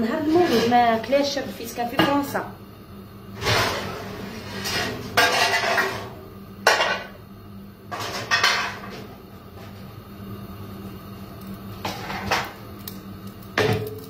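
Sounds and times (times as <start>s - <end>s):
pots and metal trays clattering: 3.4s - 7.2s, 7.9s - 9.1s, 11.8s - 12.6s, 13.6s - 14.0s.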